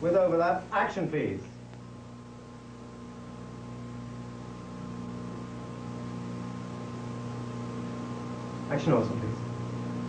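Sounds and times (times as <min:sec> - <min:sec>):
electrical mains hum with hiss: 0:00.0 - 0:10.0
faint high whine: 0:00.0 - 0:10.0.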